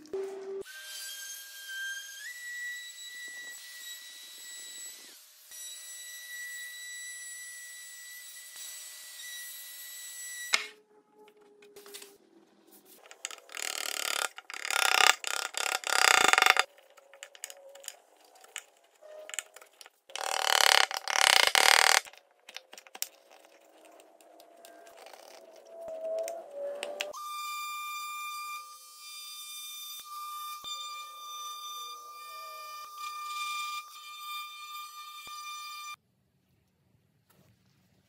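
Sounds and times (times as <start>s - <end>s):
router whining: 13.0s - 22.6s
chisel scraping wood: 13.0s - 23.5s.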